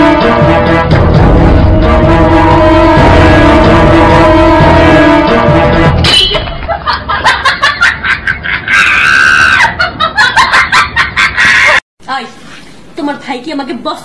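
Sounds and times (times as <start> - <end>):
music: 0.0 - 6.6
person screaming shrilly: 8.7 - 9.8.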